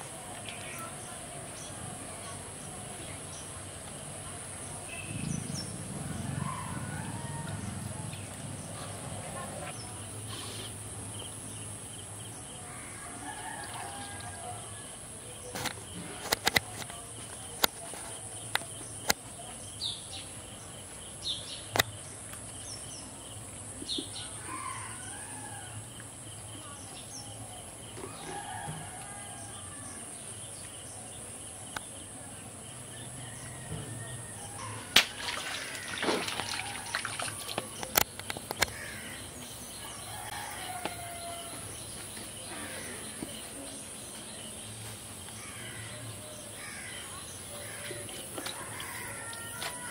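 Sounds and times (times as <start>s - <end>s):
roosters crowing: 6.0s - 8.1s, 28.0s - 30.1s, 33.1s - 37.8s, 38.7s - 41.9s, 47.6s - 49.9s.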